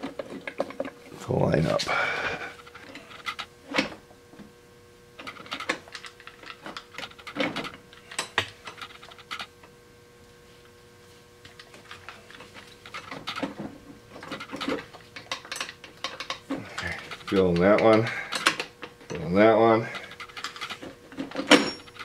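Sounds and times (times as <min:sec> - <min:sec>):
metallic gear clicks and clunks: 0:11.6 - 0:19.3, 0:19.9 - 0:22.0.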